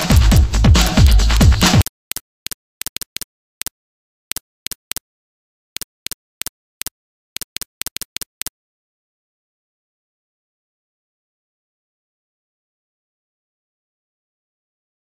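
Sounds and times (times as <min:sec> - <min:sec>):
electronic music: 0:00.0 - 0:01.8
computer mouse clicks: 0:00.0 - 0:03.7, 0:04.3 - 0:05.0, 0:05.8 - 0:08.5.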